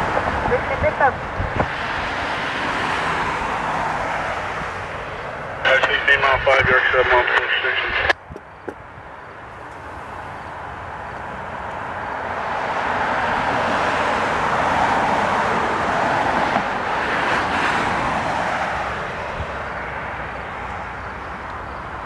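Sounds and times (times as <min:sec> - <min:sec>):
vehicle passing: 0:00.0 - 0:07.2, 0:09.0 - 0:22.0.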